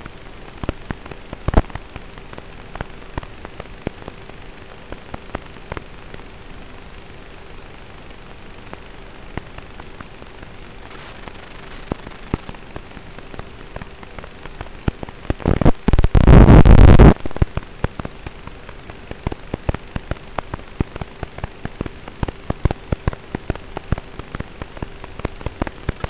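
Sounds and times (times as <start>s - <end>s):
crackling radio static: 0.0s - 26.0s
faint hum: 0.0s - 26.0s
loud distorted rush: 9.5s - 26.0s
sharp pops: 10.9s - 26.0s.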